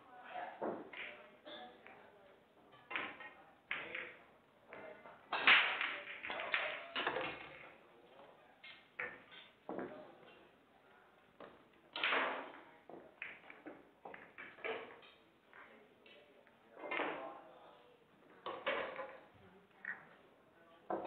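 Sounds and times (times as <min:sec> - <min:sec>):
pool balls clacking: 0:00.6 - 0:07.9, 0:08.7 - 0:10.5, 0:11.4 - 0:17.3, 0:18.2 - 0:20.2
balls set down on table: 0:11.4 - 0:15.7.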